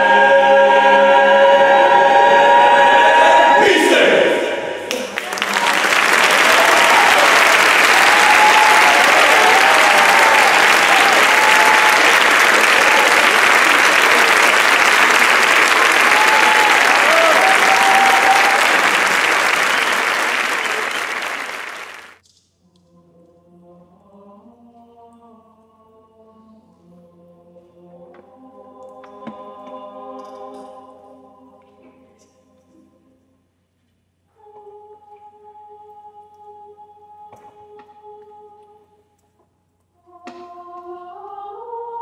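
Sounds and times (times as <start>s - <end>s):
choir singing soft chords: 0.0s - 22.1s, 22.8s - 33.5s, 34.3s - 39.0s, 40.0s - 42.0s
audience cheering: 4.8s - 22.2s
audience applauding: 4.9s - 22.2s.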